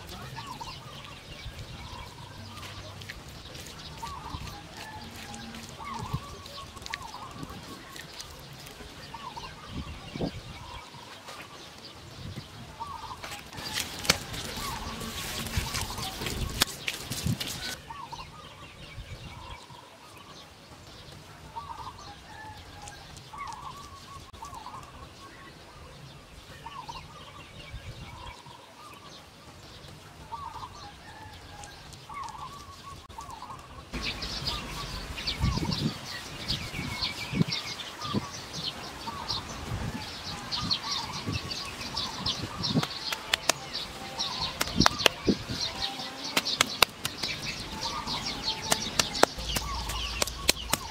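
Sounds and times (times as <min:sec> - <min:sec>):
earth clods thumping and scraping: 0:13.1 - 0:17.8, 0:46.3 - 0:50.9.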